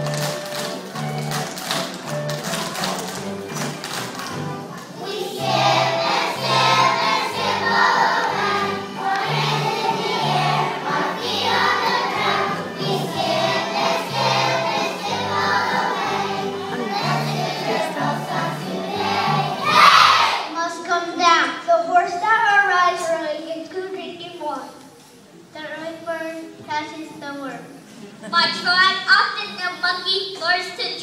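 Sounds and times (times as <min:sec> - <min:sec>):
instrumental accompaniment with bass: 0:00.0 - 0:20.0
children's choir singing: 0:04.8 - 0:20.5.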